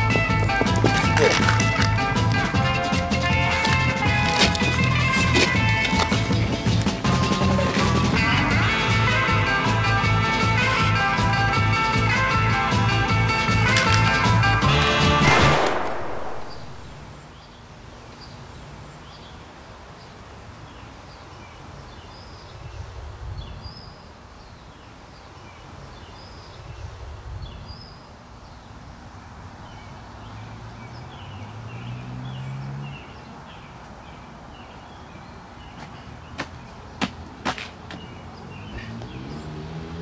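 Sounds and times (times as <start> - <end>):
small birds chirping: 29.6 - 39.8.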